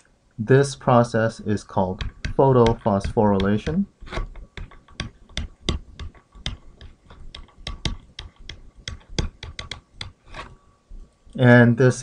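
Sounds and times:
stylus clicking on tablet: 1.9s - 10.6s.

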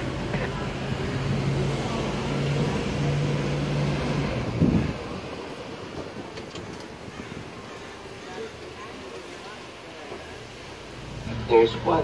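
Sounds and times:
bus engine humming: 0.0s - 12.0s
road and wind noise: 0.0s - 12.0s.

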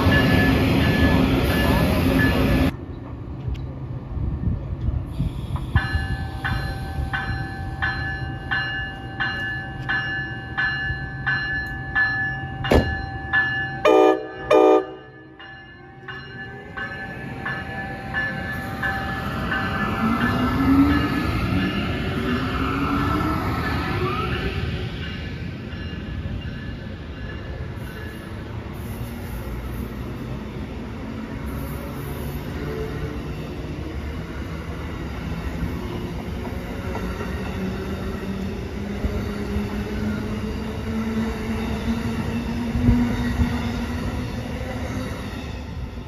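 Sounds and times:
locomotive bell ringing: 0.0s - 2.7s, 5.7s - 22.6s, 23.6s - 28.5s
train pulling in: 0.0s - 46.0s
train horn blasts: 13.8s - 15.2s.

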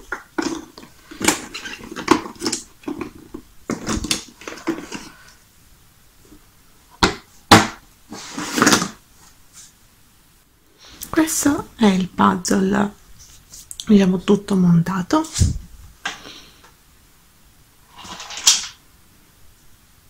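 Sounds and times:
puzzle pieces rustling and clicking: 0.0s - 5.2s, 18.0s - 18.8s.

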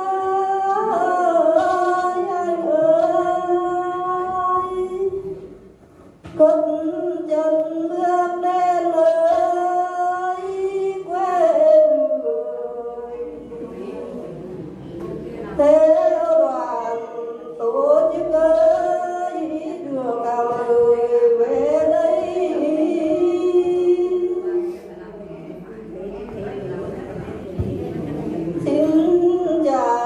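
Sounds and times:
woman singing unaccompanied: 0.0s - 5.5s, 6.2s - 13.6s, 15.4s - 24.6s, 28.6s - 30.0s.

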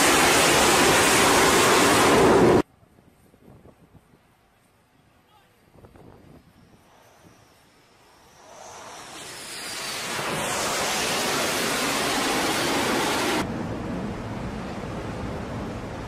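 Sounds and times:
loud rushing roar: 0.0s - 2.6s, 8.0s - 16.0s
wind and sea rushing: 0.0s - 2.6s, 5.8s - 16.0s.

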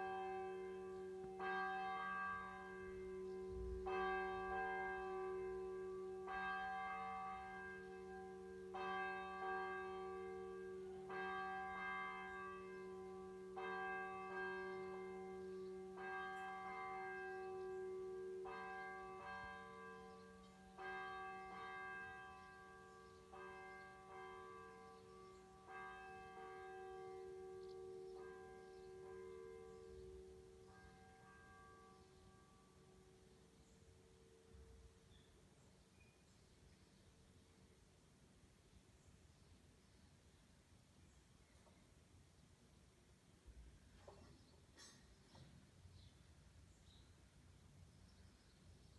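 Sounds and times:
church bell tolling: 0.0s - 35.4s.

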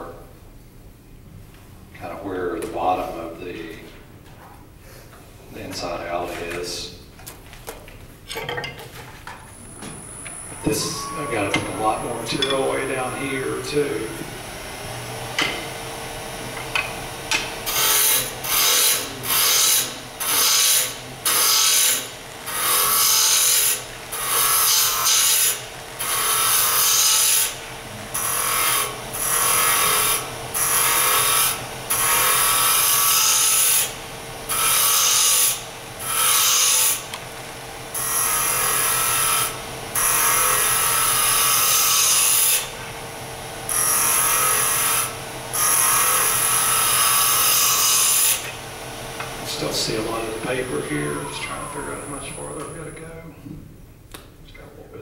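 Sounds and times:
wood lathe humming: 9.6s - 53.0s
gouge cutting spinning wood: 10.1s - 27.6s.

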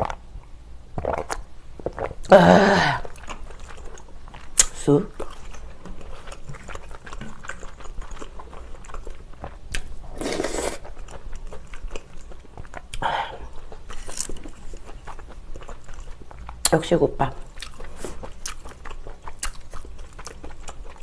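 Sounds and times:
slurping soup: 10.0s - 11.0s
chewing with clicks: 17.5s - 21.0s.

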